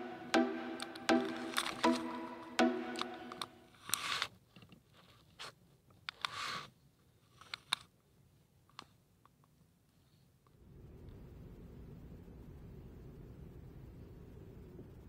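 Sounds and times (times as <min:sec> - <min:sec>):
background music: 0:00.0 - 0:03.6.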